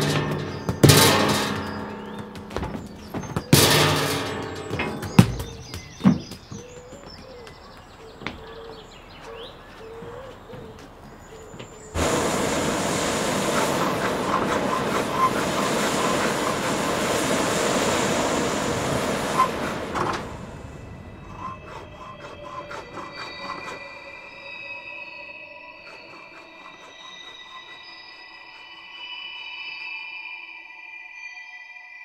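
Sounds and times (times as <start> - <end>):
blowtorch flame hissing: 12.0 - 21.1.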